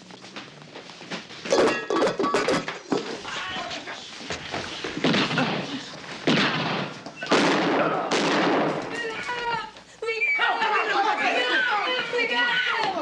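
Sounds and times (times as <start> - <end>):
gunshots ringing: 5.0 - 9.0.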